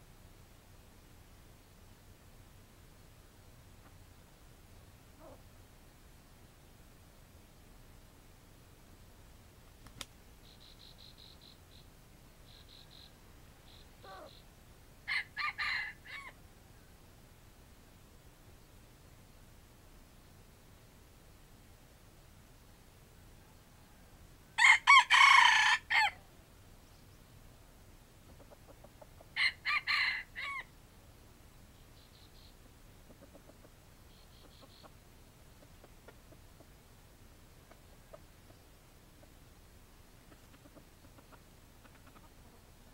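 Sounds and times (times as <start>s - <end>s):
faint small ticks: 9.7s - 11.8s
rooster crowing: 15.1s - 16.4s, 24.6s - 26.2s, 29.4s - 30.7s.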